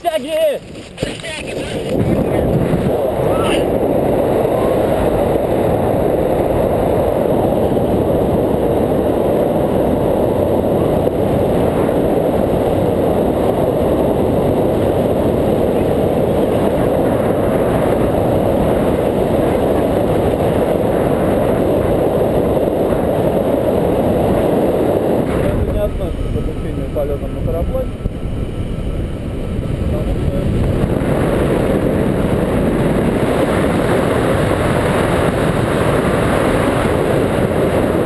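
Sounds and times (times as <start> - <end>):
wind rush on microphone: 0.0 - 38.0.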